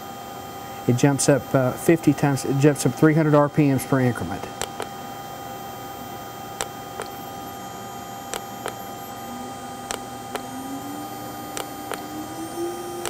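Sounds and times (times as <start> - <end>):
router spindle whine: 0.0 - 13.0
controller button clicks: 4.7 - 4.9.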